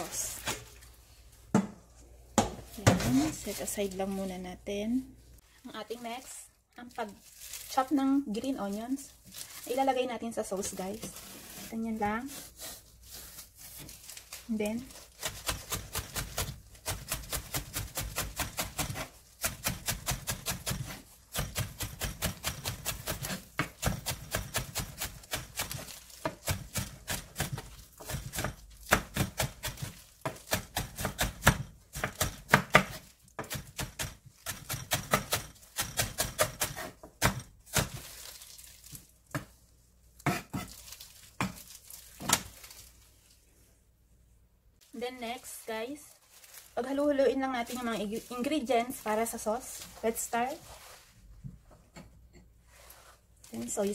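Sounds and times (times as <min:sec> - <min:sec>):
knife chopping on wooden board: 0:15.2 - 0:38.0, 0:40.2 - 0:40.7.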